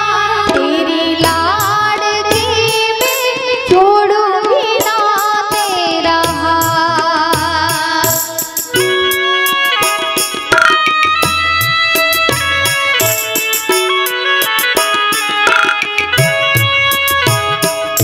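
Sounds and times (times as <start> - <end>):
instrumental accompaniment: 0.0 - 18.0
drum strokes: 8.2 - 18.0.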